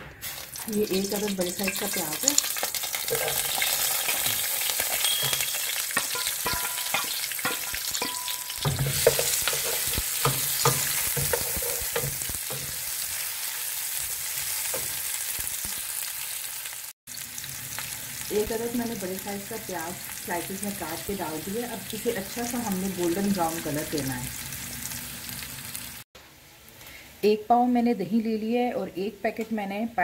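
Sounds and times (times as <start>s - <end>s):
onions sizzling in hot oil: 0.2s - 26.1s
wooden spatula scraping metal pot: 2.9s - 12.8s.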